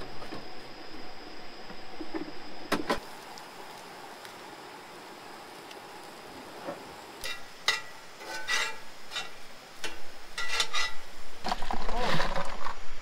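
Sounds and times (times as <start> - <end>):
onions sizzling in a pan: 2.3 - 11.5.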